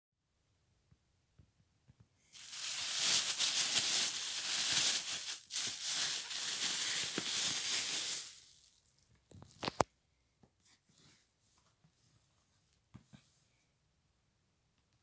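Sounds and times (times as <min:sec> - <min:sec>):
plastic bag crinkling: 0:02.3 - 0:09.8.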